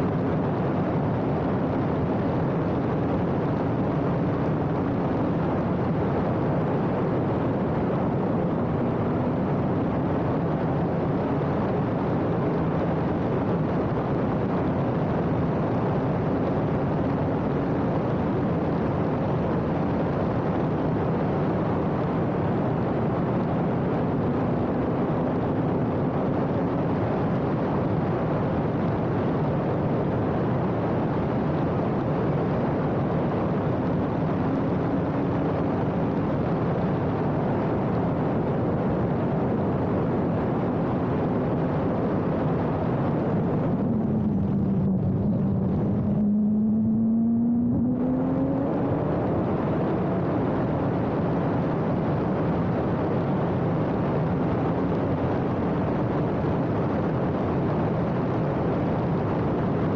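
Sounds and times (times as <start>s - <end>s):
wind and road noise rushing: 0.0s - 59.9s
race car engine: 41.2s - 52.6s.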